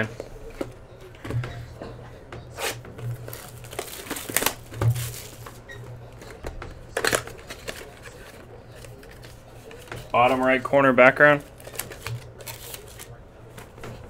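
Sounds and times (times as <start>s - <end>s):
cardboard box rustling and scraping: 3.2s - 5.6s.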